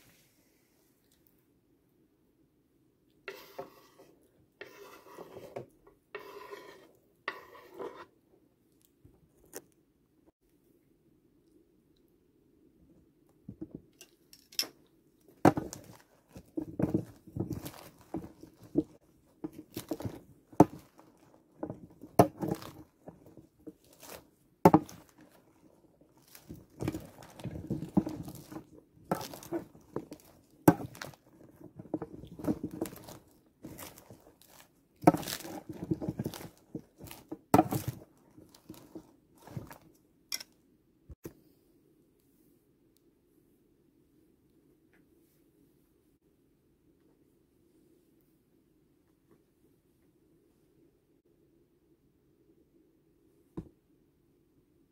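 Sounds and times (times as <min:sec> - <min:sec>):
lettuce leaves rustling: 0:15.6 - 0:19.0, 0:22.3 - 0:39.8.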